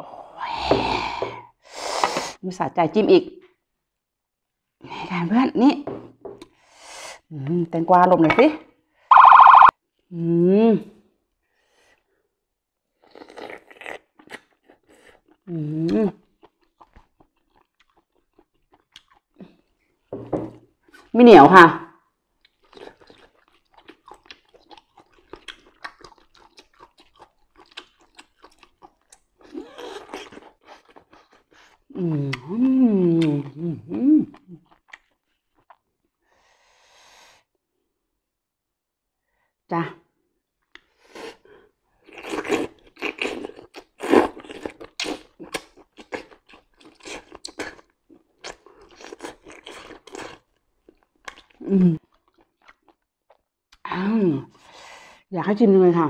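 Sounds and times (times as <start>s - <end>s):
wet chewing and crunching: 16.2s - 19.7s, 22.4s - 31.9s, 34.3s - 36.2s, 42.0s - 53.9s.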